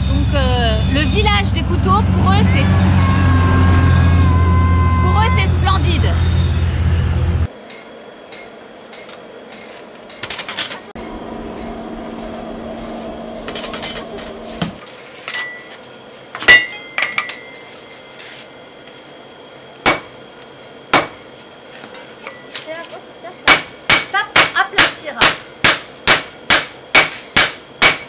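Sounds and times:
steady hum: 0:00.0 - 0:10.2
hammer ringing on anvil: 0:07.6 - 0:10.3, 0:11.0 - 0:14.1, 0:16.4 - 0:17.7, 0:19.9 - 0:21.7, 0:23.5 - 0:28.0.

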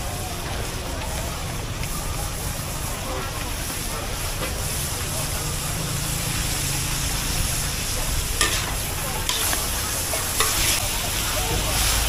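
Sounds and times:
food sizzling in a wok: 0:00.0 - 0:12.0
metal spatulas scraping a pan: 0:08.2 - 0:11.1.

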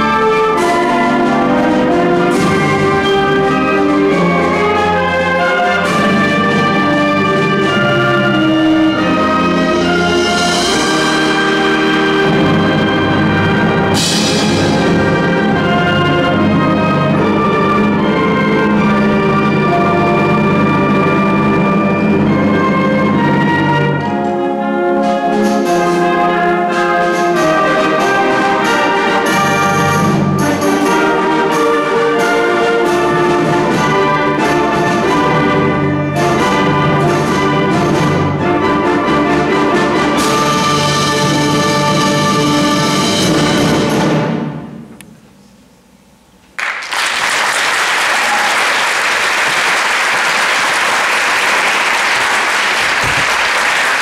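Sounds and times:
concert band playing: 0:00.0 - 0:44.9
audience applause: 0:46.6 - 0:54.0.

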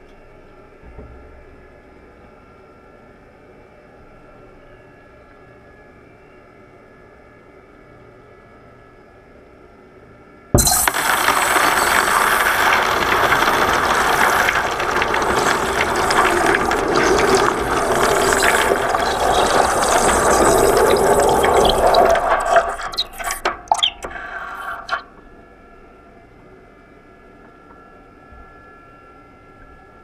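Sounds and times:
molten metal hissing in water: 0:10.6 - 0:25.1
crackles and pops: 0:10.6 - 0:25.2.

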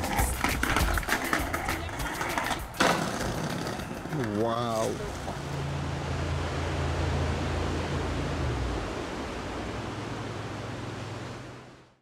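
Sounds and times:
low hum: 0:05.0 - 0:11.9.

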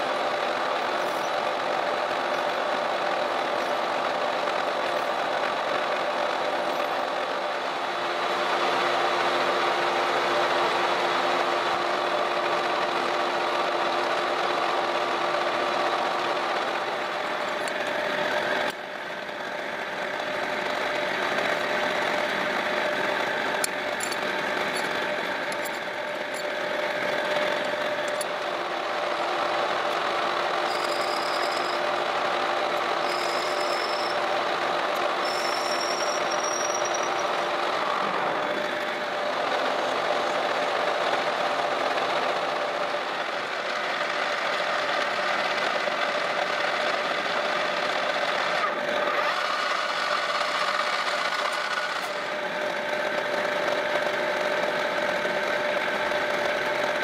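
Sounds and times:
metal lathe humming: 0:00.1 - 0:57.0
cutting tool whistles: 0:30.7 - 0:31.8, 0:33.0 - 0:34.2, 0:35.2 - 0:37.3.

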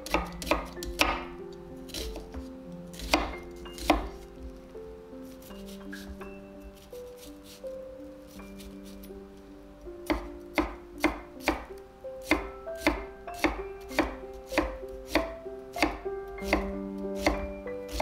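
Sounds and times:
knife chopping on wooden board: 0:00.0 - 0:01.3, 0:01.9 - 0:04.2, 0:10.0 - 0:18.0.

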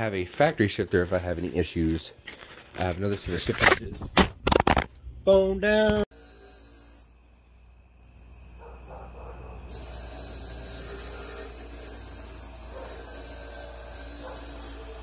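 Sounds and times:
night insects trilling: 0:06.1 - 0:15.0.

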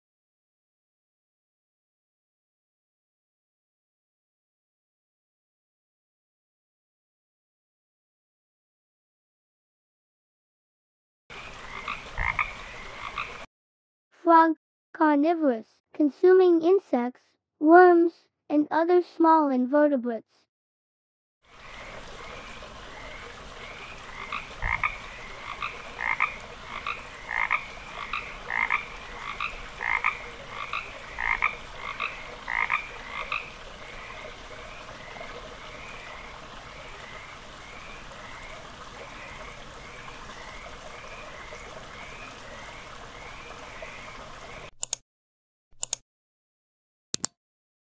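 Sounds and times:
faint frogs calling: 0:11.3 - 0:13.5, 0:21.5 - 0:44.7
nearby frog calling: 0:11.4 - 0:13.5, 0:21.6 - 0:44.0.

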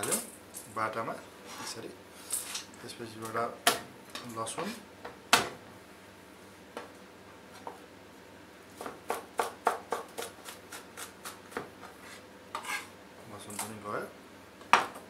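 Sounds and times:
knife chopping on cutting board: 0:08.8 - 0:12.8.

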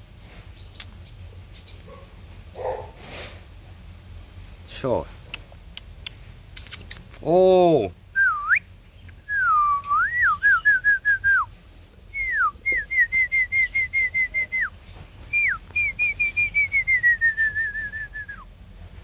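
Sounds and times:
person whistling: 0:09.3 - 0:11.5, 0:12.1 - 0:14.7, 0:15.3 - 0:18.4.

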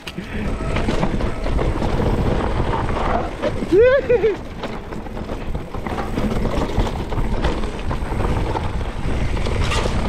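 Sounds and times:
bike chain and frame rattling: 0:00.0 - 0:10.0
bike tyres on dirt: 0:00.0 - 0:10.0
wind rushing over microphone: 0:00.0 - 0:10.0.

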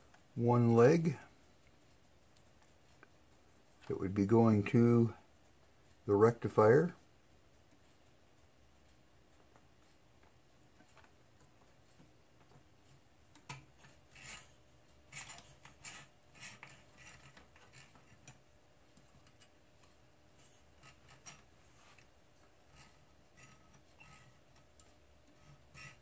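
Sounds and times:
test probes and wires clicking: 0:07.5 - 0:20.0.

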